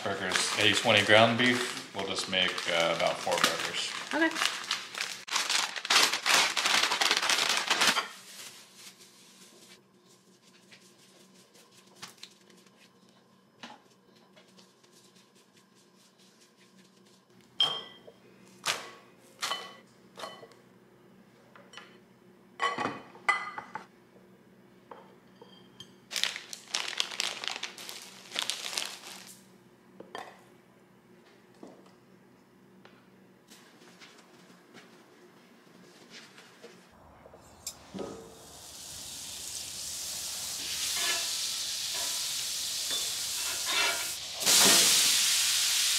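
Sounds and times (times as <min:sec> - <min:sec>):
paper wrapping crinkling: 0:00.0 - 0:09.8, 0:26.1 - 0:29.4
dishes and glass bowl clinking: 0:17.6 - 0:18.2, 0:42.9 - 0:44.1.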